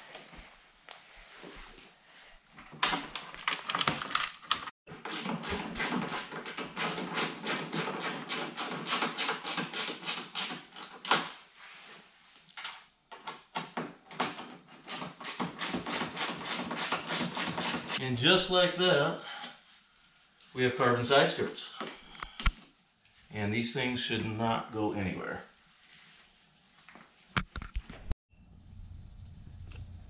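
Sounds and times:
hands tapping and clicking plastic parts: 2.8s - 5.6s.

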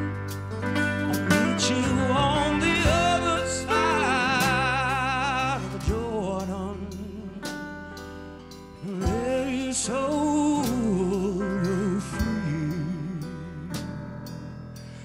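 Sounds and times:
quiet instrumental backing: 0.0s - 15.0s
man singing rock vocals: 1.1s - 7.5s, 8.8s - 13.8s.

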